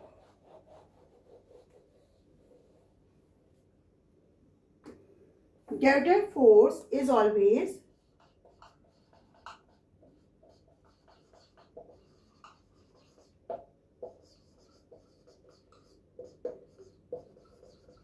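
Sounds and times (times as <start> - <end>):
marker squeaking on whiteboard: 7.9 - 18.0.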